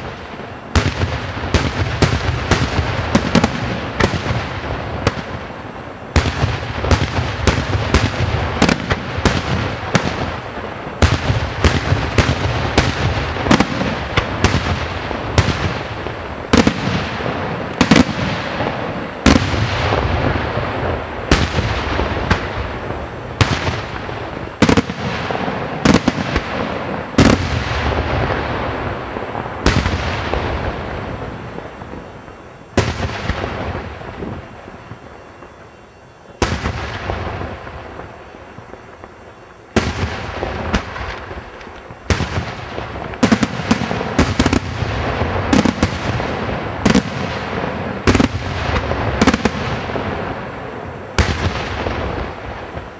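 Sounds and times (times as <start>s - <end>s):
continuous rumble: 0.0s - 52.9s.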